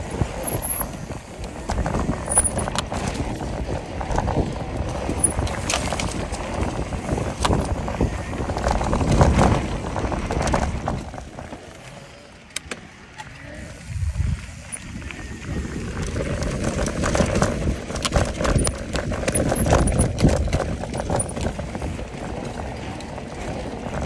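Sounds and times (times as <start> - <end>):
wind on microphone: 0.0 - 11.5, 13.7 - 24.0
bike clicks and rattles: 0.0 - 24.0
bike tyres rolling over dirt: 0.0 - 24.0.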